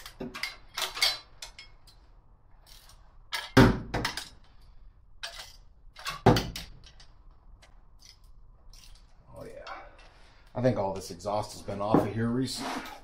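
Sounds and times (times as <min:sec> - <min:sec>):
wrench clinking on metal bolts: 0:00.0 - 0:02.0.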